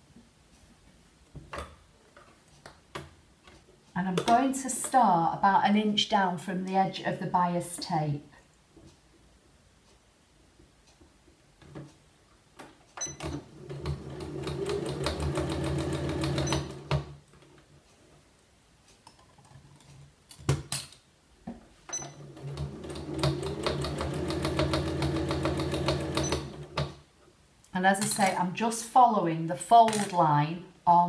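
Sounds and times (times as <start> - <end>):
sewing machine stitching: 13.0 - 17.1, 21.9 - 26.9.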